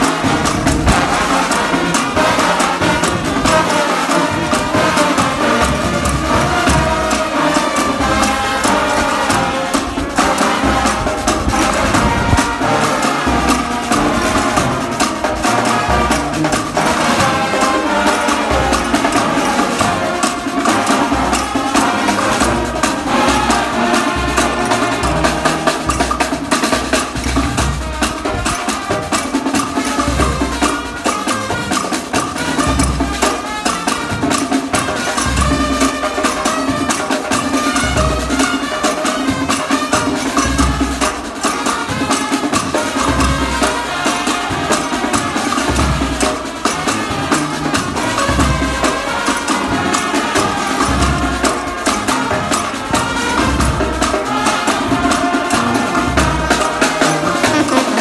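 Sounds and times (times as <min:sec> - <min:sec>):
brass band playing: 0:00.0 - 0:58.0
steady drum beat: 0:00.0 - 0:58.0
trombones playing melody: 0:00.0 - 0:58.0
sousaphone bass: 0:57.3 - 0:58.0.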